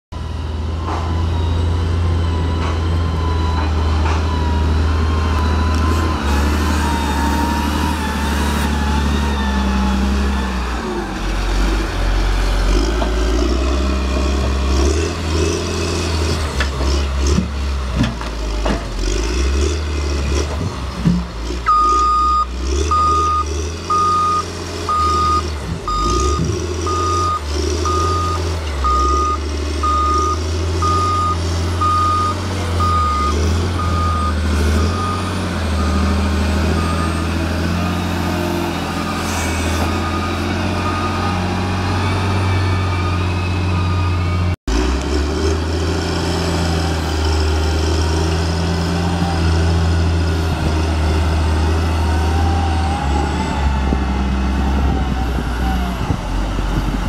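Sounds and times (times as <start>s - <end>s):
diesel engine running: 0.1s - 57.0s
reversing alarm beeping: 21.7s - 37.3s, 39.0s - 44.5s.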